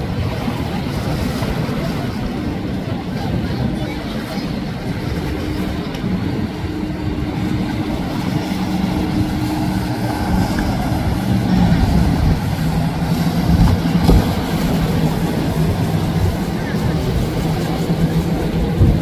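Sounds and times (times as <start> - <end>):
yacht engines droning: 0.0 - 19.0.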